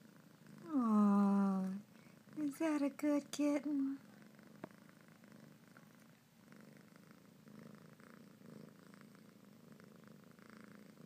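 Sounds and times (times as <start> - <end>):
kitten purring: 0.0 - 11.0.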